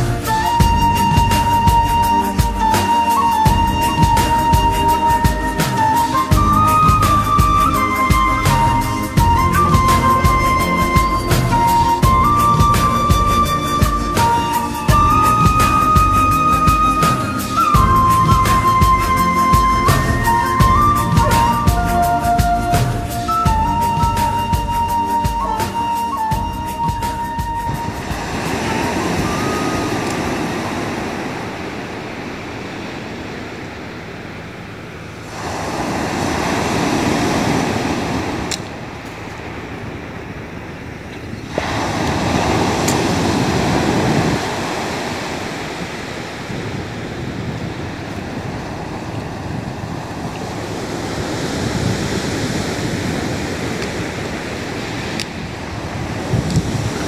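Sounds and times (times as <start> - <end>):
surf breaking on pebble beach: 27.8 - 33.4, 35.2 - 38.5, 41.5 - 47.6.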